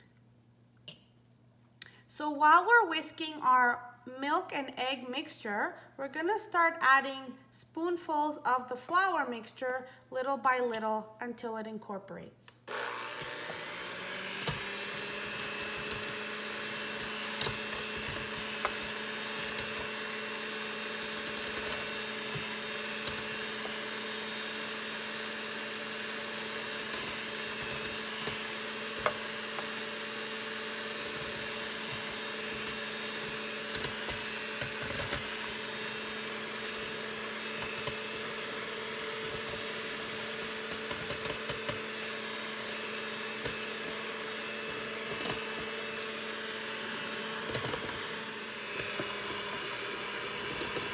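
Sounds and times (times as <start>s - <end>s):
electric hand mixer whisking: 12.7s - 50.9s.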